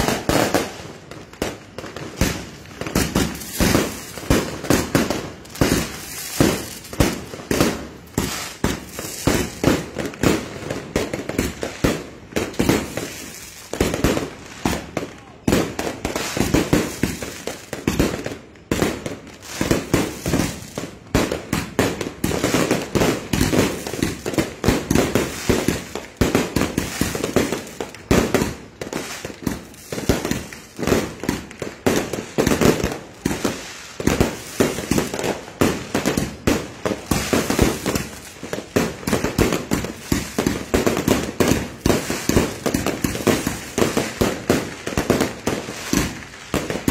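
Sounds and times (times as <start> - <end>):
fireworks bangs: 0.0 - 46.9.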